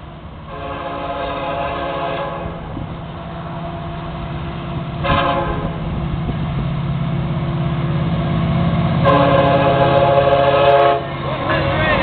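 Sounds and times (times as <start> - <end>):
diesel locomotive drone: 0.0 - 12.0
locomotive horn blasts: 0.5 - 2.7, 5.0 - 5.9, 9.0 - 11.6.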